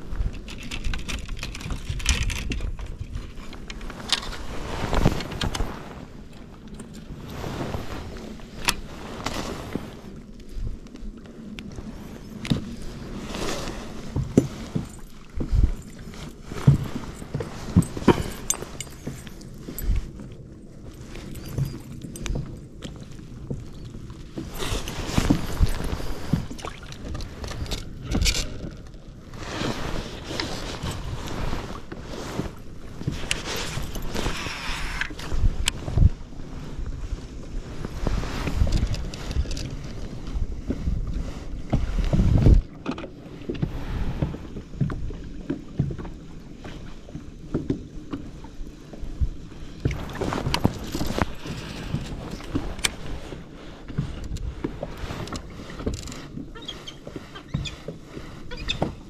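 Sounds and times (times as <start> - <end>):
wind buffeting microphone: 23.6 - 45.2
water splashing against boat hull: 41.7 - 59.0.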